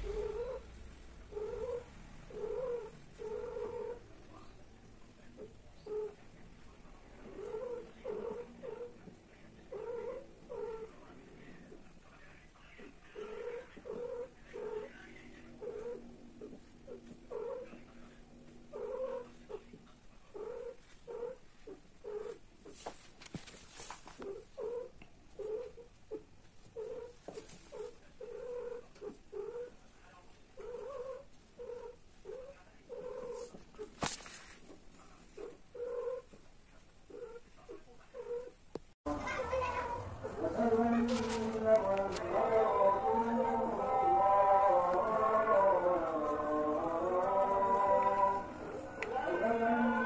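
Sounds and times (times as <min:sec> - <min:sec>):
cat making low rhythmic calls: 0:00.0 - 0:04.1, 0:07.2 - 0:11.0, 0:12.7 - 0:22.7, 0:24.2 - 0:29.8, 0:30.5 - 0:34.0.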